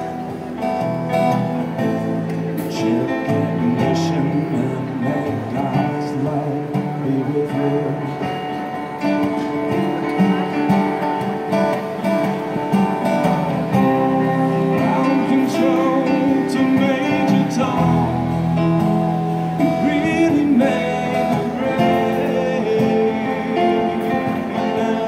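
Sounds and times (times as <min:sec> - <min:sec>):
acoustic guitar strumming: 0:00.0 - 0:25.0
electronic keyboard chords: 0:00.0 - 0:25.0.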